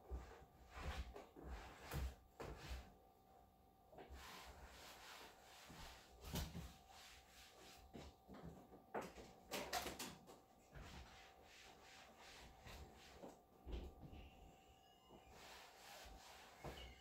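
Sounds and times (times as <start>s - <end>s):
cloth rubbing a surface: 0.1s - 3.0s, 4.0s - 8.2s, 10.7s - 13.4s, 15.1s - 17.0s.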